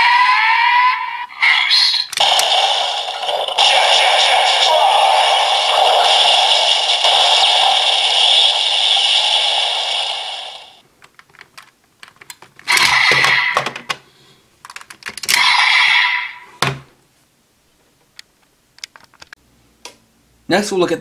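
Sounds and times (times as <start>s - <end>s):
toy electronic sound: 1.3s - 10.8s, 12.7s - 13.7s
plastic clicks: 11.0s - 14.0s, 14.6s - 15.4s, 18.1s - 20.0s.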